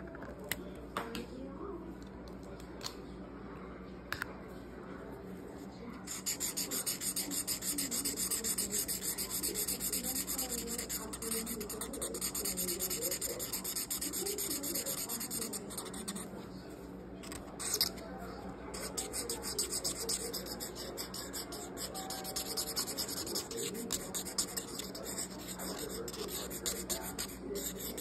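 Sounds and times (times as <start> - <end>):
marker scratching on paper: 6.1 - 16.3, 17.2 - 18.0, 18.7 - 28.0.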